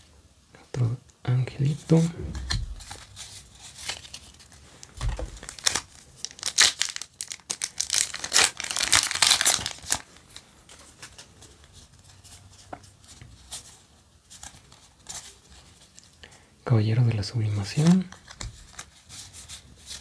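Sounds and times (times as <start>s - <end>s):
foil pack tearing and crinkling: 3.8s - 10.1s.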